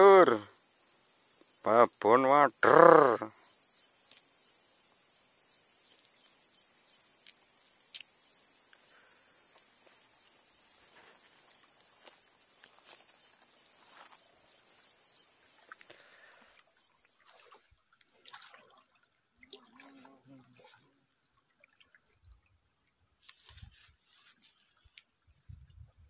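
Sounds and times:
insects droning: 0.0 - 26.0
fishing line clicks and rustles: 23.2 - 25.1.

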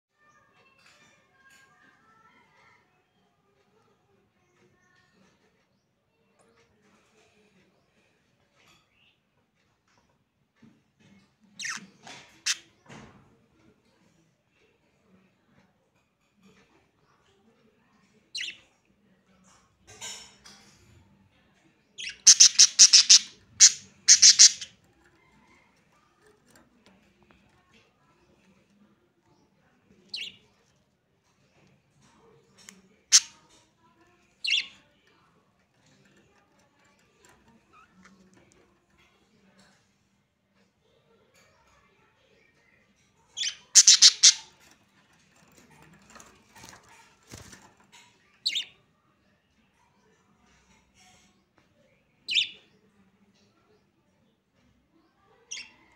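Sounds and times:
budgerigars chirping: 22.0 - 24.7, 43.4 - 44.5.

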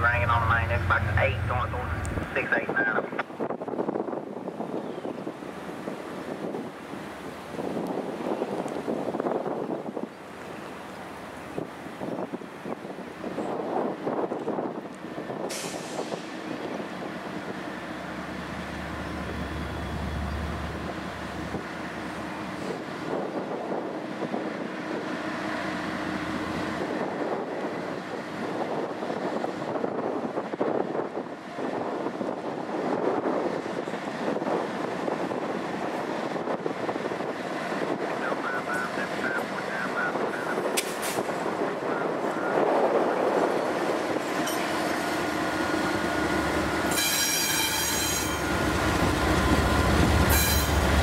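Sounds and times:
diesel locomotive rumbling: 0.0 - 51.0
wind buffeting microphone: 0.4 - 46.9
air brake hiss: 15.5 - 16.3.

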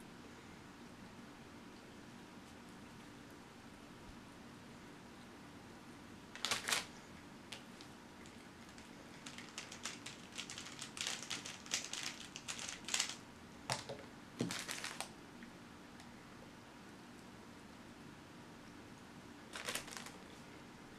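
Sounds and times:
paper wrapper crinkling: 6.4 - 6.9, 8.2 - 13.2, 14.4 - 15.1, 19.5 - 20.3.

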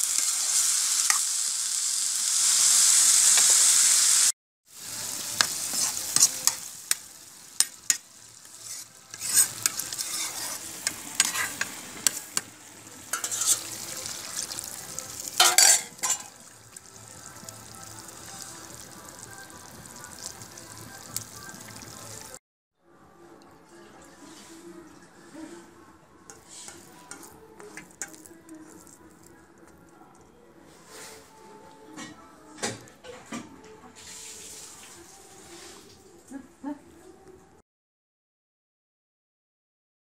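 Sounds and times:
liquid hissing in hot pan: 0.0 - 22.3
vegetables sizzling in a pan: 0.0 - 22.4
metal spatula scraping pan: 5.3 - 6.7, 7.6 - 16.4, 26.3 - 28.3.

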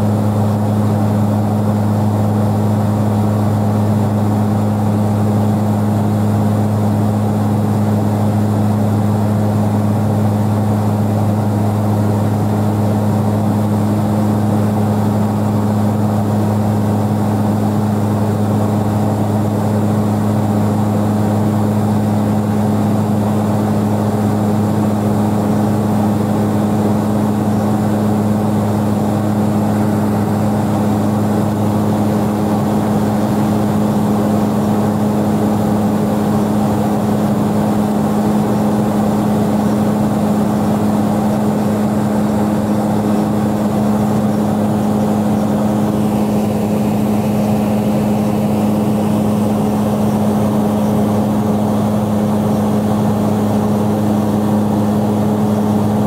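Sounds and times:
airplane engines droning in cabin: 0.0 - 56.0.

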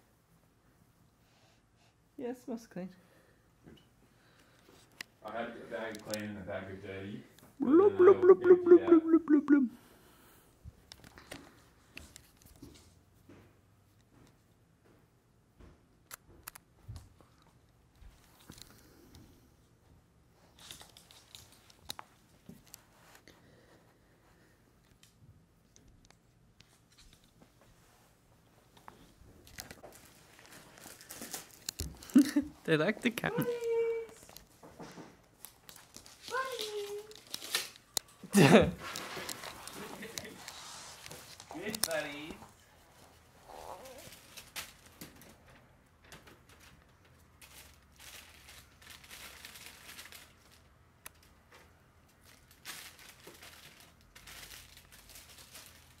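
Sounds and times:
plastic bag crinkling: 29.4 - 33.6, 35.4 - 42.3, 46.5 - 51.4, 52.1 - 56.0.

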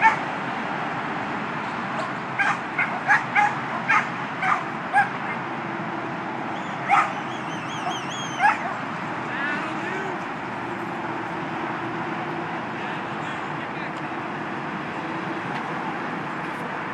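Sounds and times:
dog yipping: 0.0 - 0.2, 2.4 - 5.4, 6.6 - 8.8
freeway traffic hum: 0.0 - 16.9.

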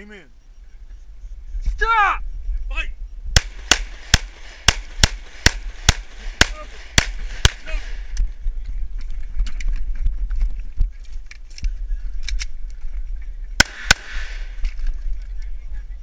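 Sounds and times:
pistol shots: 3.4 - 8.1, 13.6 - 14.7.

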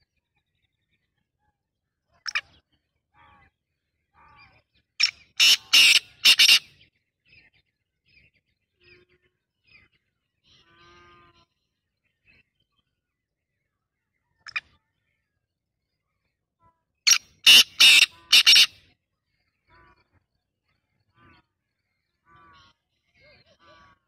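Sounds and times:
faint bird chirps: 0.0 - 24.0
bird harsh calling notes: 5.0 - 6.8, 17.1 - 18.8.

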